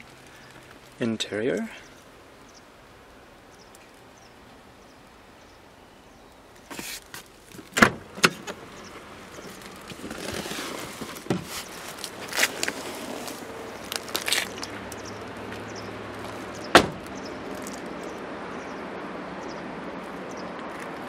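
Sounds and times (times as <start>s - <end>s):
shuffling movement: 8.6s - 16.6s.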